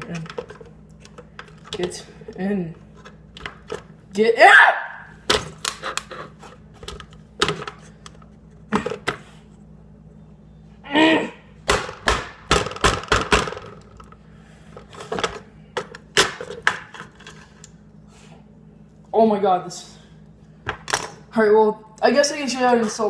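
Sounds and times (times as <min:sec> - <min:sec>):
person straining: 0:10.8 - 0:11.5.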